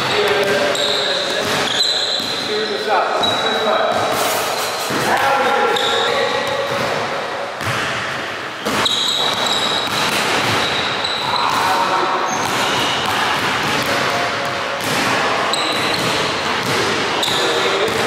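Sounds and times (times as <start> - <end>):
shoe squeaks: 0.0 - 6.7, 8.6 - 13.1, 15.5 - 16.3, 17.2 - 17.9
basketball bouncing on wooden floor: 8.7 - 11.7, 12.3 - 18.0.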